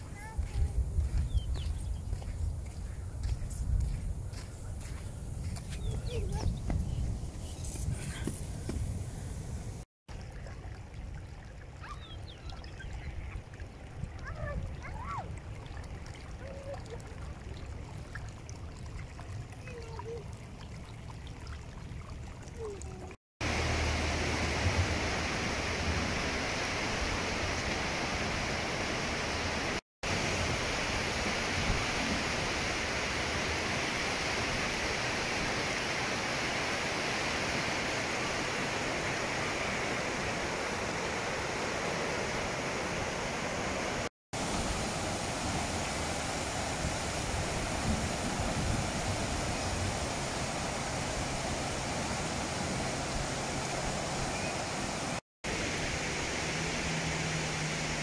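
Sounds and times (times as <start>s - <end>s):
torrent of water roaring over rocks: 11.9s - 20.3s, 22.5s - 58.0s.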